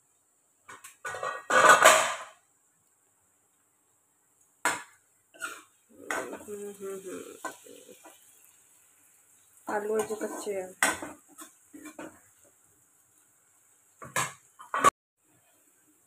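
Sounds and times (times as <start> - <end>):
metal cookware clattering: 0.7 - 2.4, 9.7 - 12.2
metal spatula scraping a pan: 1.0 - 2.3, 5.4 - 8.4, 9.6 - 12.6.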